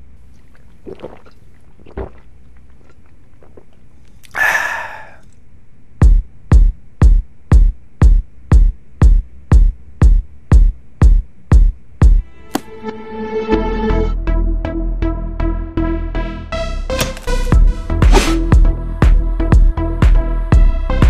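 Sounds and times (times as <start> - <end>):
electronic kick drum beat: 6.0 - 12.2, 17.5 - 20.9.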